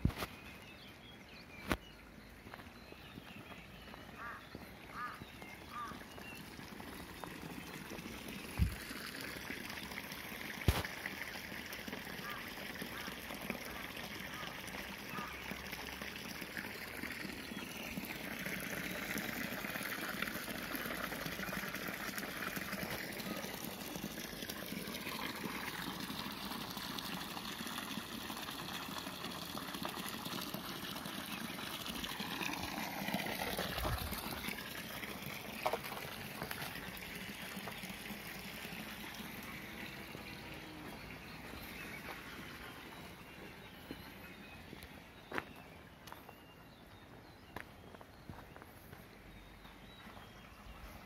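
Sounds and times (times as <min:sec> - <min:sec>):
water pouring into a tank: 0:05.7 - 0:43.8.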